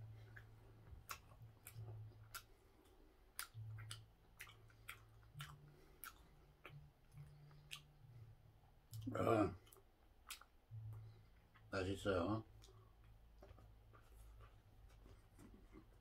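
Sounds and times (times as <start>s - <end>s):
faint low hum: 0.0s - 16.0s
person chewing with mouth clicks: 0.1s - 11.7s.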